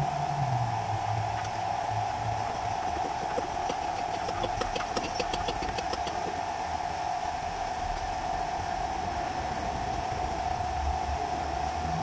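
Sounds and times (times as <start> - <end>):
steady mechanical hum: 0.0 - 12.0
ratchet wrench clicking: 2.5 - 6.3.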